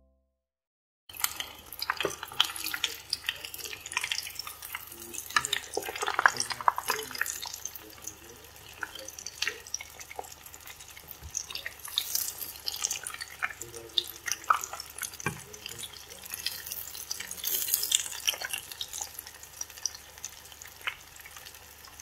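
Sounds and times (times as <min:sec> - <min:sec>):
food deep-frying in oil: 0:01.1 - 0:22.0.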